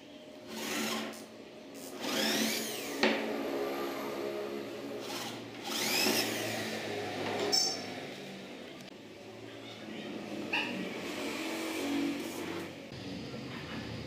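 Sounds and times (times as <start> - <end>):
electric drill boring into wood: 0.5 - 3.3, 5.0 - 8.4.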